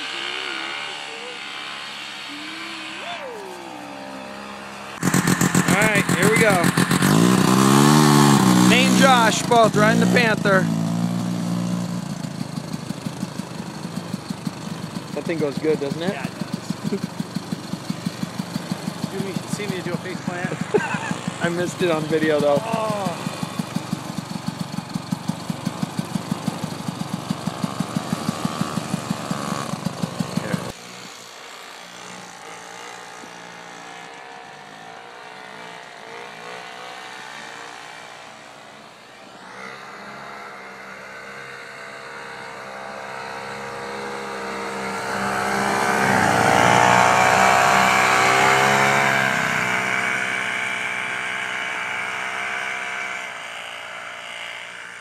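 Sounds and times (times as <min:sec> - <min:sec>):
distant snowmobile passing: 0:00.0 - 0:55.0
snowmobile engine pulsing: 0:00.0 - 0:55.0.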